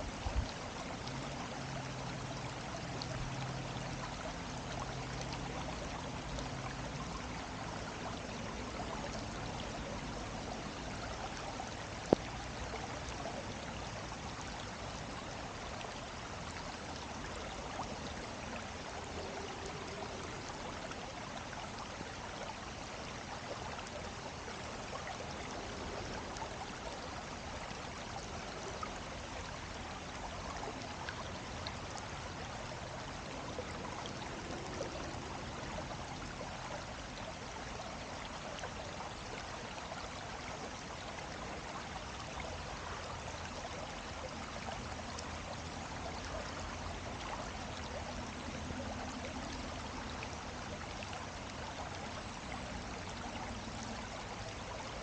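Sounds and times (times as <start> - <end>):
stream flowing over rocks: 0.0 - 55.0
faint ticks: 10.8 - 13.9.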